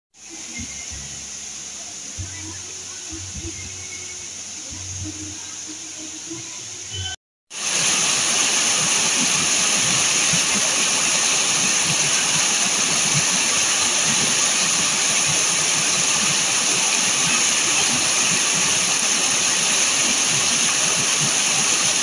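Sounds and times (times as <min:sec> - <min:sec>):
water rushing over rocks: 0:07.5 - 0:22.0.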